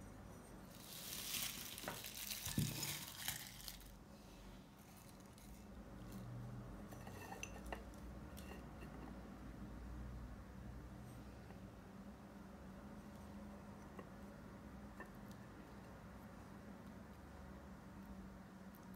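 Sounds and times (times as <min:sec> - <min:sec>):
candy wrappers rustling in ceramic jar: 0:00.7 - 0:04.0, 0:04.8 - 0:05.7.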